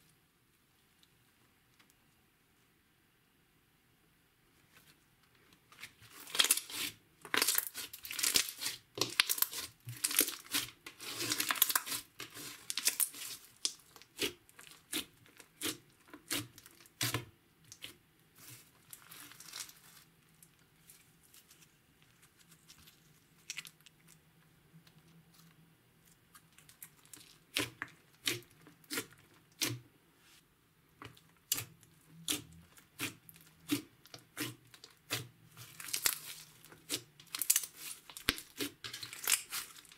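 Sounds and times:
slime crackling and popping: 0:06.1 - 0:20.1, 0:26.4 - 0:29.8, 0:31.0 - 0:39.9.

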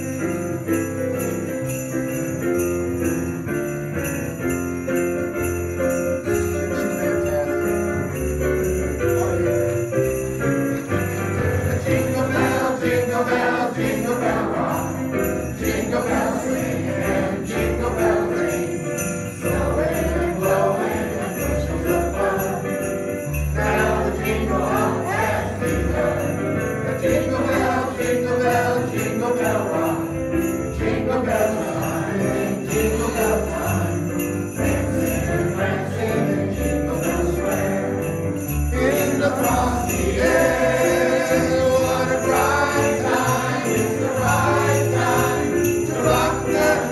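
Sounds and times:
instrumental accompaniment: 0:00.0 - 0:46.9
man and boy singing christmas duet: 0:06.3 - 0:10.0, 0:11.6 - 0:46.9
man and boy singing duet: 0:38.7 - 0:46.9.

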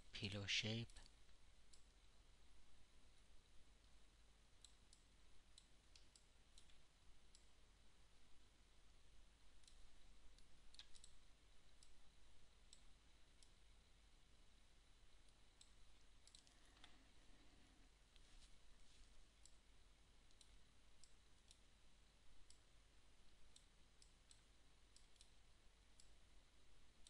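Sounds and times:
low steady hum: 0:00.0 - 0:27.0
computer mouse clicks: 0:04.6 - 0:07.5, 0:10.4 - 0:11.2, 0:15.2 - 0:17.0, 0:20.3 - 0:21.6, 0:23.5 - 0:26.2.

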